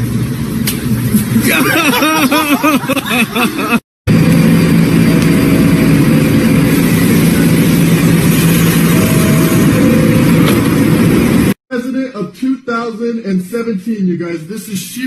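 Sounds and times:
subway car hum and rumble: 0.0s - 11.6s.

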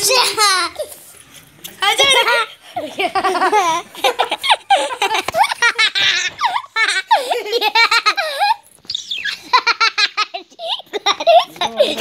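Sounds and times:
people laughing and squealing: 0.0s - 12.0s.

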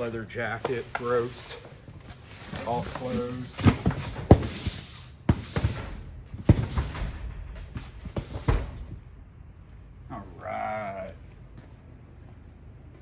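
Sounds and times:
fabric and cardboard rustling: 0.0s - 9.0s
boxes knocking and thumping: 2.4s - 9.1s.

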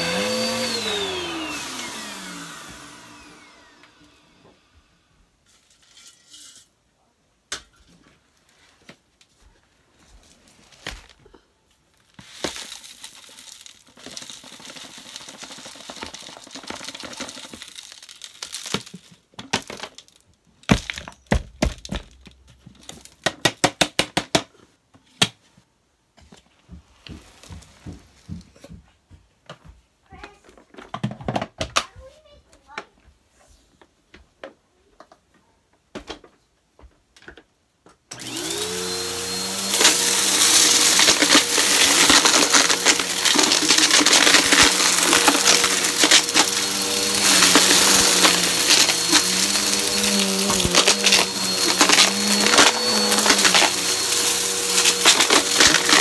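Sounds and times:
sandy dirt pouring: 12.0s - 19.1s, 38.5s - 56.0s.

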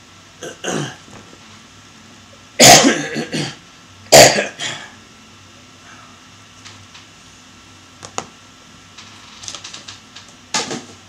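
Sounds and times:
man coughing: 0.4s - 1.0s, 2.6s - 4.9s.

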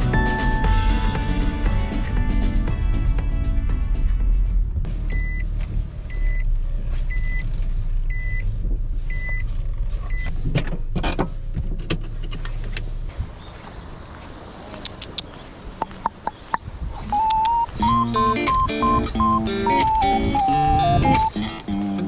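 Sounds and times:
car engine idling: 0.0s - 13.1s
car warning chime beeping: 5.1s - 5.5s, 6.1s - 6.5s, 7.1s - 7.4s, 8.1s - 8.4s, 9.1s - 9.4s, 17.1s - 21.4s
knocks and clunks: 10.2s - 12.8s.

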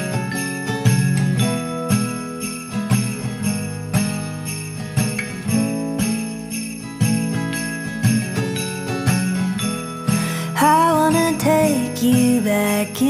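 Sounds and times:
jingling sleigh bells: 0.0s - 13.0s
pop song with steady beat: 10.2s - 13.0s.

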